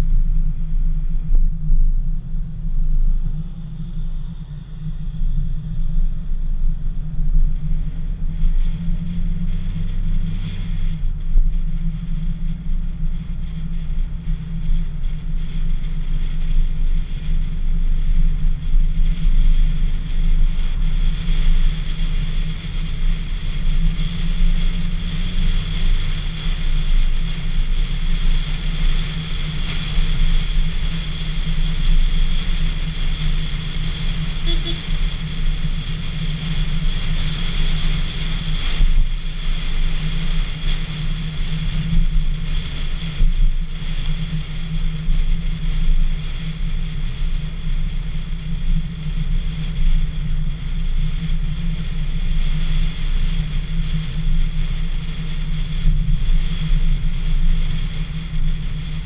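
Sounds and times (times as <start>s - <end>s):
car engine: 0.0s - 43.6s
wind rumble on microphone: 0.0s - 59.0s.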